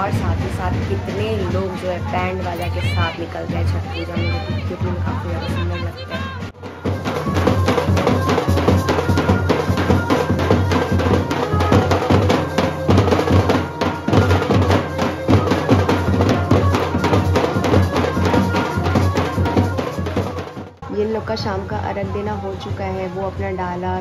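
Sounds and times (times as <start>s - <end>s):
big bass drums beating: 0.0s - 20.8s
side drum on sticks: 6.6s - 20.6s.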